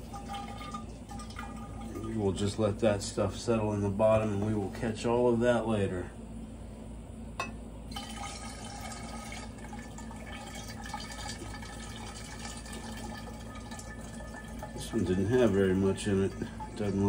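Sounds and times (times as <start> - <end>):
liquid pouring into glass flask: 0.0 - 2.6, 7.9 - 17.0.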